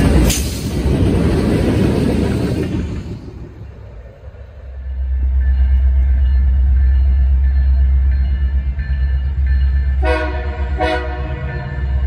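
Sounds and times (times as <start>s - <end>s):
diesel locomotive engines rumbling: 0.0s - 12.0s
train air horn blast: 10.0s - 11.5s.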